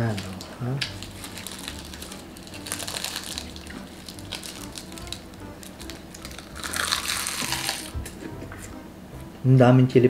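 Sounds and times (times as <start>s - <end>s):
seaweed sheets crackling: 0.0s - 8.0s
soft background music: 0.0s - 10.0s.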